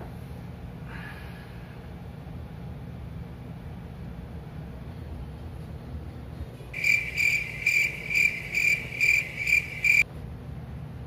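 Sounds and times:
cricket chirping: 0:06.8 - 0:10.0.

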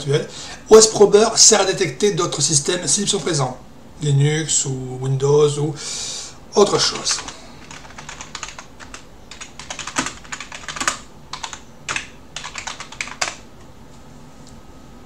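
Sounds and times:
computer keyboard typing: 0:06.8 - 0:13.4.

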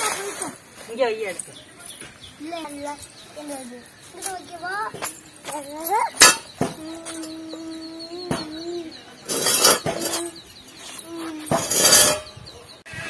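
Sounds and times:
metal stove clinking on stone: 0:05.9 - 0:07.4, 0:11.6 - 0:12.4.

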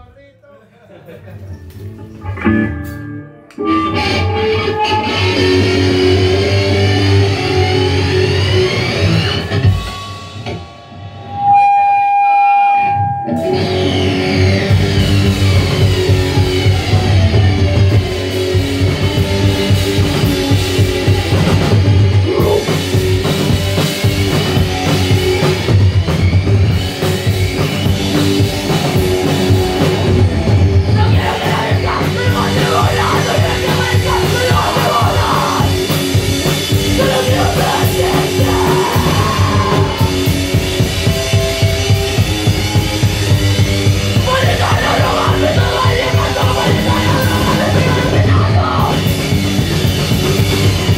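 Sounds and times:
electric guitar: 0:01.3 - 0:50.9
fast drum kit: 0:13.5 - 0:50.9
person singing: 0:22.1 - 0:22.9, 0:30.9 - 0:36.0, 0:36.7 - 0:40.4, 0:44.2 - 0:49.2.

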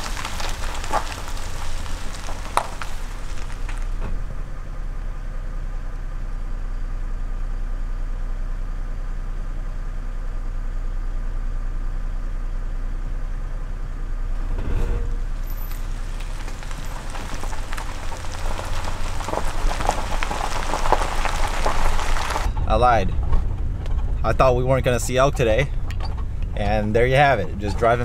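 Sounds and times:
tyres rolling over gravel: 0:00.0 - 0:05.0, 0:15.2 - 0:28.0
vehicle engine idling: 0:00.0 - 0:28.0.

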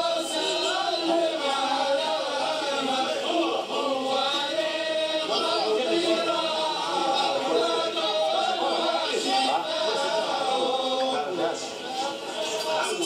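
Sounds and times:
men chanting and singing: 0:00.0 - 0:13.0.

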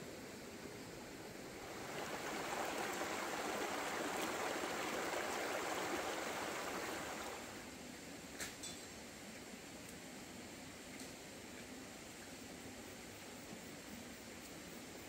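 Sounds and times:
stream rushing over rocks: 0:00.8 - 0:07.8.

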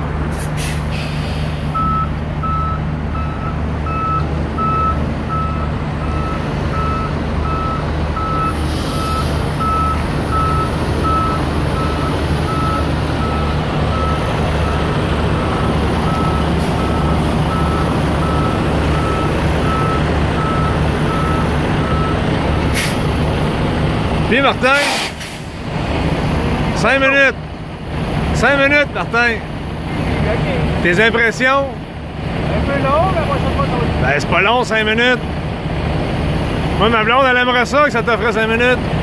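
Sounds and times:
diesel truck engine drone: 0:00.0 - 0:39.0
truck reversing alarm beeping: 0:01.0 - 0:23.1
air hiss: 0:08.6 - 0:09.6, 0:22.7 - 0:23.1, 0:24.8 - 0:25.6.

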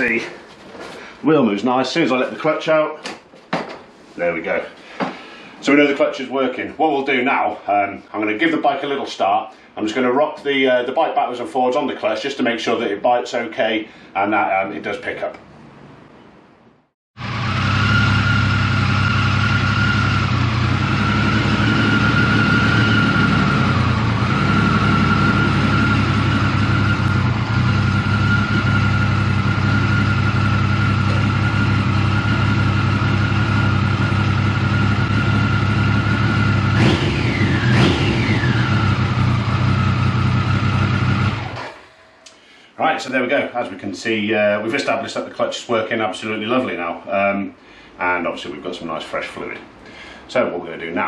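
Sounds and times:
motorcycle engine idling: 0:17.2 - 0:41.6
motorcycle engine revving: 0:17.2 - 0:42.0.

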